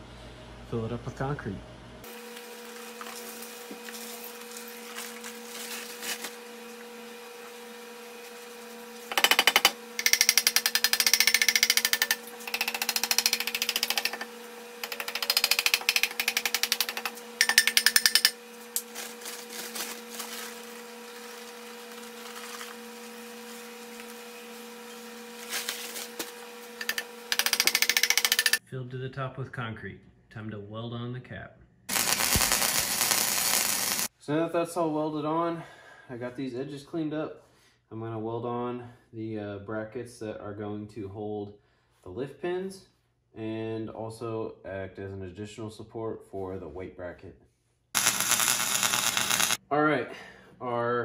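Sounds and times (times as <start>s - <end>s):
steady hum: 31.9s - 34.1s.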